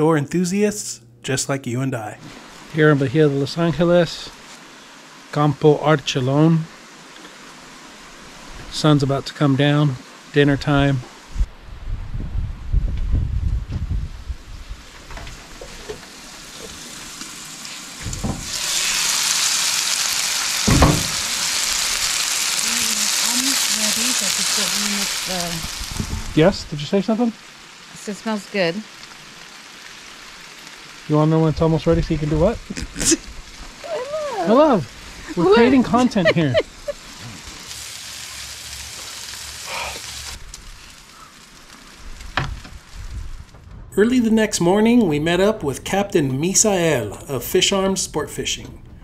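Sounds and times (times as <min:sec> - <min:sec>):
burger patties sizzling on griddle: 0:14.5 - 0:43.5
short low thump: 0:25.9 - 0:26.4.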